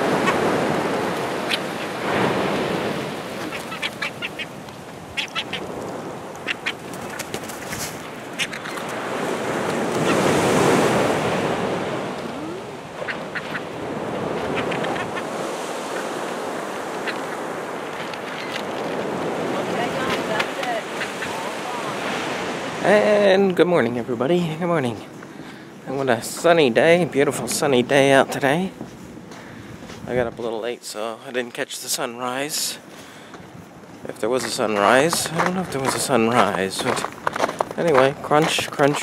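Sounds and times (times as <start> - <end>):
surf breaking: 0.0 - 4.5, 5.1 - 23.5
gulls squeaky cries: 1.2 - 2.1, 3.2 - 5.8, 6.4 - 6.9.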